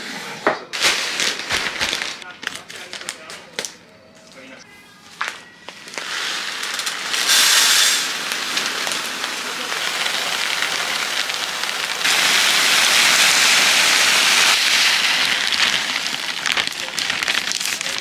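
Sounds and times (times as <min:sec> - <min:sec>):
rice grains pouring into wooden box: 0:05.8 - 0:18.0.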